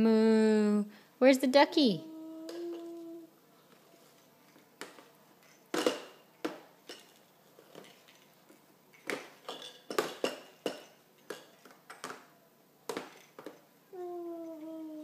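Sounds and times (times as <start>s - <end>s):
plastic toys clattering on a tray: 4.5s - 12.3s, 12.9s - 13.6s.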